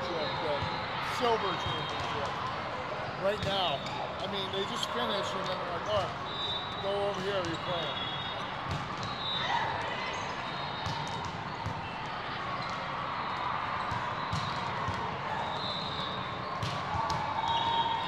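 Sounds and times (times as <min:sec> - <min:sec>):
background chatter of crowd: 0:00.0 - 0:18.0
volleyballs hit and bouncing: 0:03.3 - 0:04.0, 0:08.4 - 0:12.9, 0:13.8 - 0:15.2, 0:15.8 - 0:17.7.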